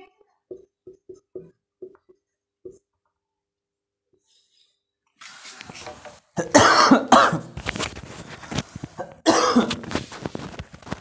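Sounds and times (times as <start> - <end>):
person coughing: 6.4 - 7.6, 9.0 - 9.8.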